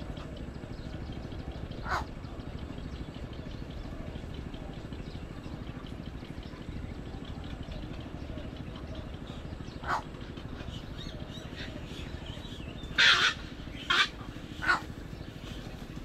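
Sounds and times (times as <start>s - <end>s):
egret chicks squawking: 1.7s - 2.2s, 9.4s - 16.0s.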